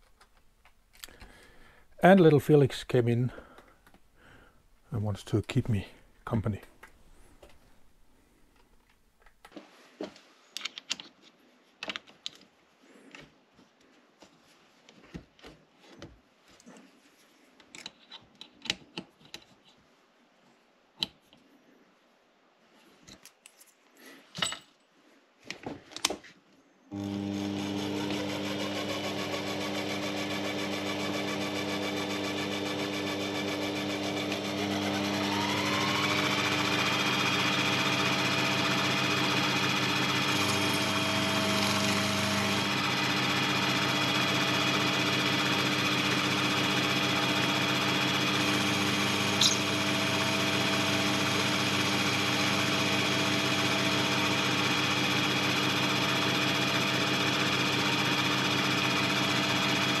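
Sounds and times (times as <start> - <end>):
lathe motor humming: 26.9 - 60.0.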